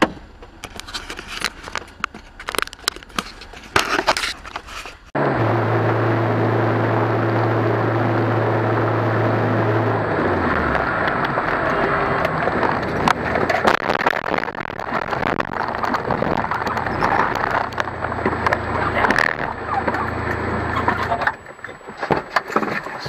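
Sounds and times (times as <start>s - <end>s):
road and engine noise: 0.0s - 23.0s
low hum: 0.2s - 23.0s
sharp clicks and knocks: 10.7s - 23.0s.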